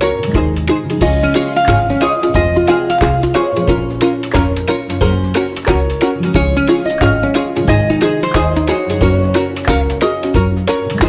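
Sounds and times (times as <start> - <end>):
plucked-string tune with steady beat: 0.0 - 11.0.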